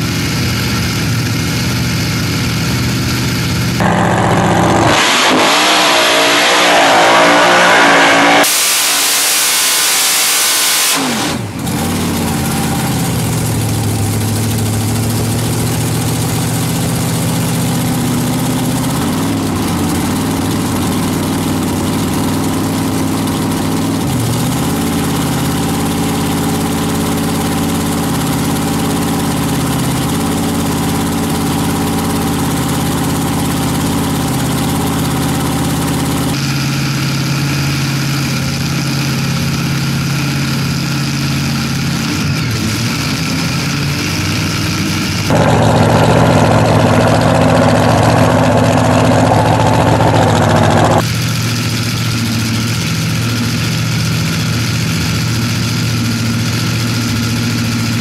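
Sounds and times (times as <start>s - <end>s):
engine lumpy idle: 0.0s - 4.9s, 11.4s - 58.0s
engine revving hard: 3.8s - 13.8s, 34.6s - 51.1s.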